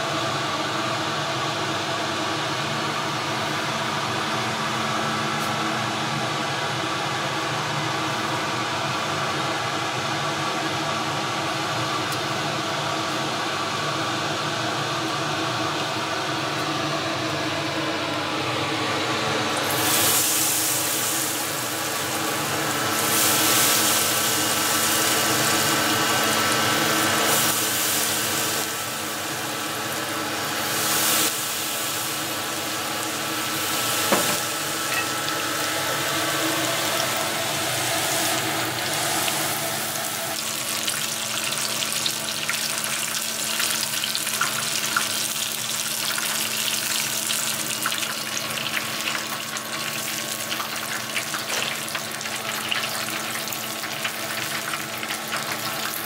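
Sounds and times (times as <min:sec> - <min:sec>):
steady machine hum: 0:00.0 - 0:56.0
seafood sizzling in hot oil: 0:18.3 - 0:56.0.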